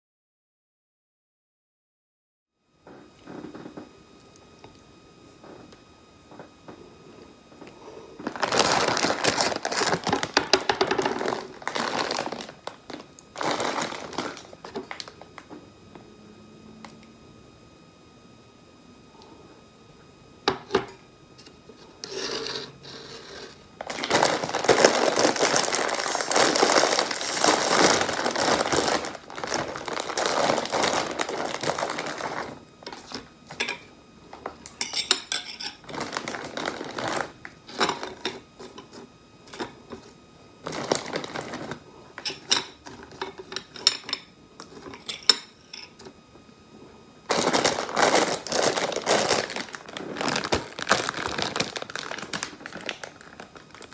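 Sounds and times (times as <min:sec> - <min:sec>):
plastic packet crinkling: 0:08.2 - 0:15.4, 0:23.8 - 0:33.2, 0:35.8 - 0:38.2, 0:40.6 - 0:43.2, 0:47.3 - 0:53.9.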